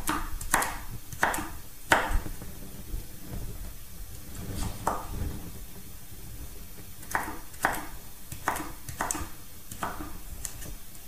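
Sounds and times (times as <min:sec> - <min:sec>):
knife chopping on wooden board: 0:00.0 - 0:02.2, 0:07.1 - 0:10.2.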